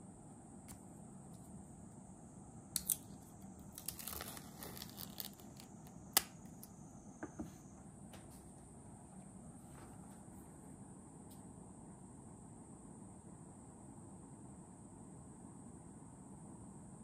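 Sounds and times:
plastic packaging crinkling and tearing: 3.7s - 5.9s.

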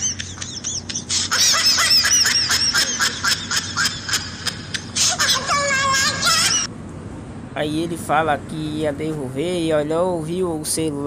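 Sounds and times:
high-pitched comedic laughter: 0.0s - 6.7s.

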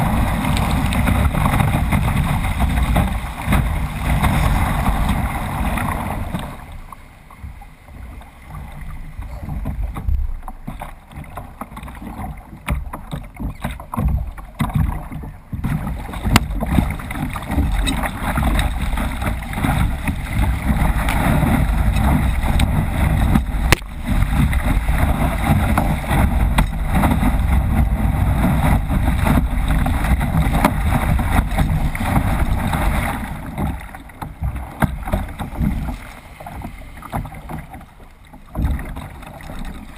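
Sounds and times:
whitewater rushing and splashing: 0.0s - 39.9s
sharp water splashes: 11.9s - 37.8s
wind buffeting microphone: 14.1s - 36.1s.

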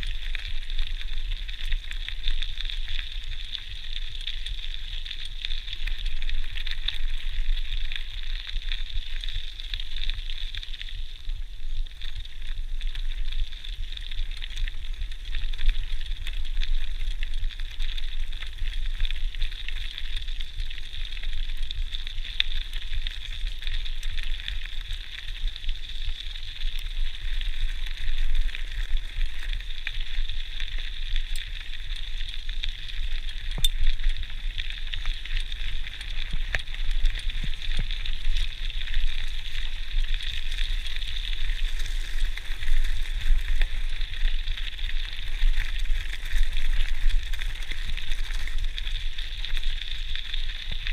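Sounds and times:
bike tyres crackling on gravel: 0.0s - 50.9s
small clicks and rattles: 12.0s - 50.8s.

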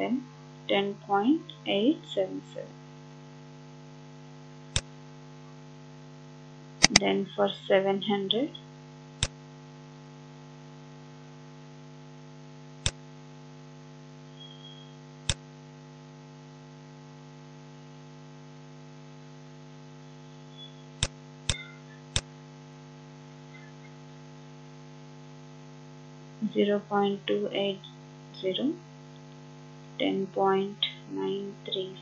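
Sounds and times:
electrical mains hum: 0.0s - 32.0s
sharp clicks: 6.8s - 7.0s.

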